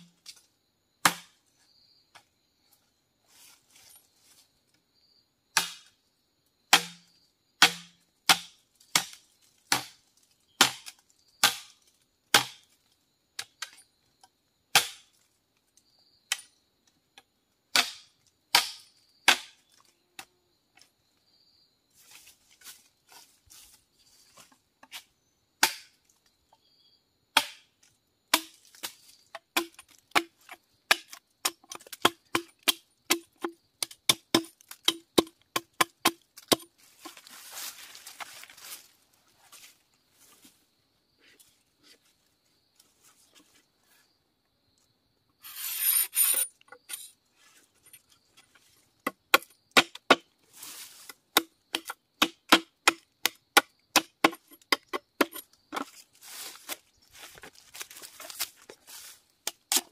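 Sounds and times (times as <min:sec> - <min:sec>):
machete chopping bamboo: 0:01.0 - 0:01.4, 0:05.6 - 0:06.0, 0:06.7 - 0:10.0, 0:10.6 - 0:12.7, 0:14.7 - 0:15.1, 0:17.7 - 0:19.6, 0:25.6 - 0:26.0, 0:27.3 - 0:37.2, 0:49.0 - 0:50.3, 0:51.0 - 0:56.8, 0:59.4 - 0:59.9.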